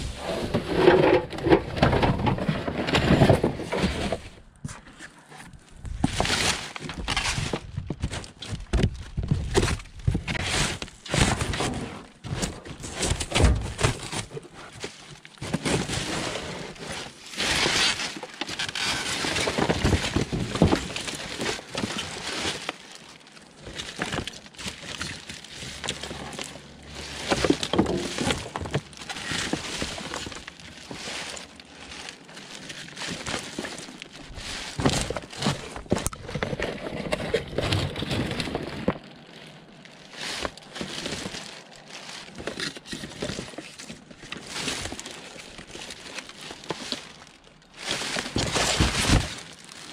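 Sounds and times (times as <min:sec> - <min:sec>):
scrap clattering in dumpster: 0:00.0 - 0:04.4, 0:09.5 - 0:22.7, 0:23.7 - 0:39.0, 0:47.8 - 0:49.6.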